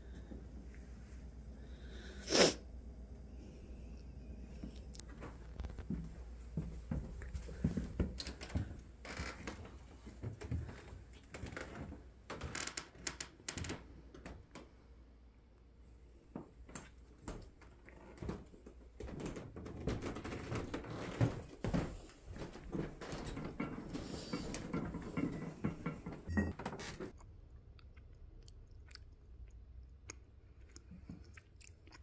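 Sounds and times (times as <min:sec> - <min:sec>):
footsteps on wooden floorboards: 0:05.2 - 0:11.9, 0:18.1 - 0:26.6.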